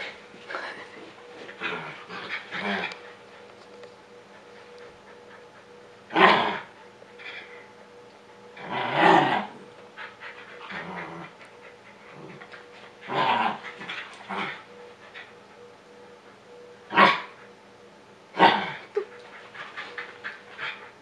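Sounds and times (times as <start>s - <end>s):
dogs growling: 0.0s - 3.3s, 6.1s - 7.6s, 8.6s - 15.2s, 18.4s - 21.0s
dogs panting: 0.0s - 8.6s, 9.8s - 16.5s, 19.0s - 21.0s.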